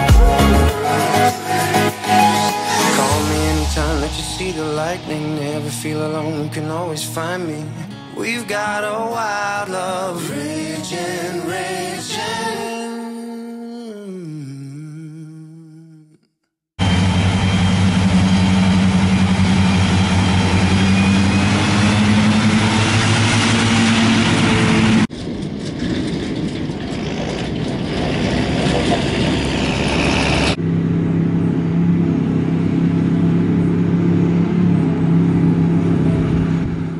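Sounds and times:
mower diesel engine running: 0.0s - 8.1s, 16.8s - 36.9s
forage harvester engine running: 16.8s - 36.9s
tractor pulling trailer: 16.8s - 36.9s.

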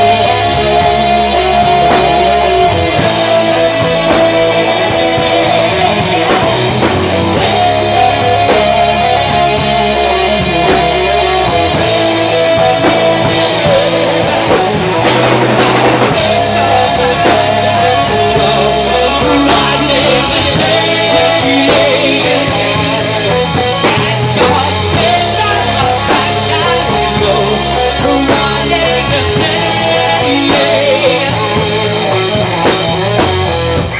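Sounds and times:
drum kit: 0.0s - 33.9s
electric guitar: 0.0s - 33.9s
woman singing: 7.4s - 32.4s.

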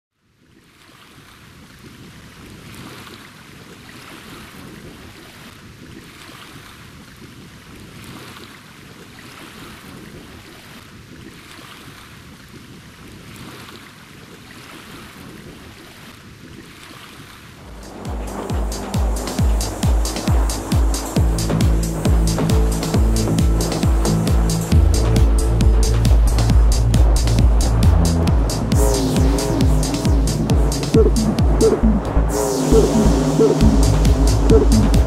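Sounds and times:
low wind rumble: 17.6s - 35.0s.

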